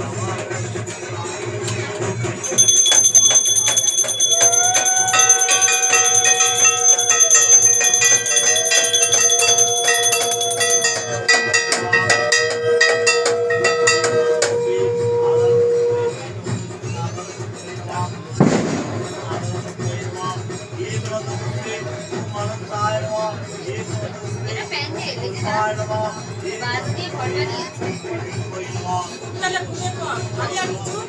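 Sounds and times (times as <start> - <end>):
hand bell rung rapidly: 2.4 - 14.5
long held note: 12.2 - 16.4.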